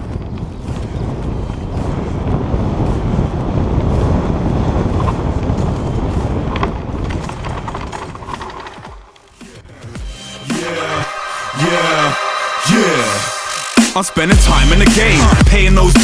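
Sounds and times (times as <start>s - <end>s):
wind buffeting microphone: 0.0s - 9.2s
bike tyres rolling on dirt: 0.0s - 9.7s
short rattles: 6.2s - 9.5s.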